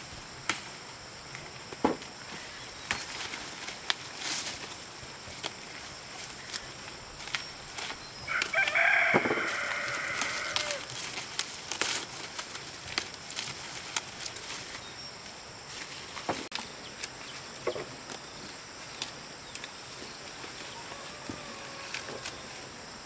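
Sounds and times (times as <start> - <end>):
rooster crowing: 8.3 - 10.9, 20.6 - 22.6.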